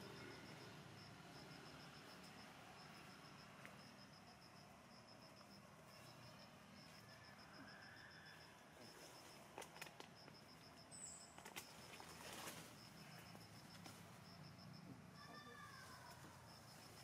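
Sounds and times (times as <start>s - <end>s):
faint high insect chirping: 0.0s - 17.0s
soft rustle: 11.3s - 14.2s.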